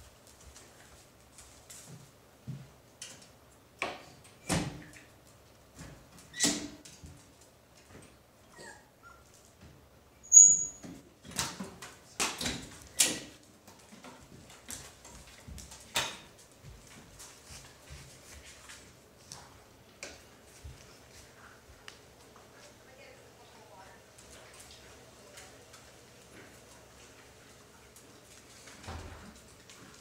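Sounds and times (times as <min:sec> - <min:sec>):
puppies scuffling on bedding: 0:00.0 - 0:02.8, 0:12.7 - 0:30.0
high puppy squeak: 0:08.5 - 0:09.3, 0:10.2 - 0:10.9.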